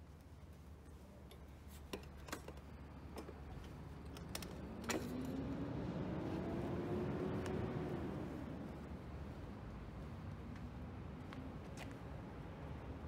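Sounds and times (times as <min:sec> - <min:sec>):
vehicle hum: 0:01.0 - 0:13.0
metal stand clicks and clanks: 0:01.3 - 0:05.4.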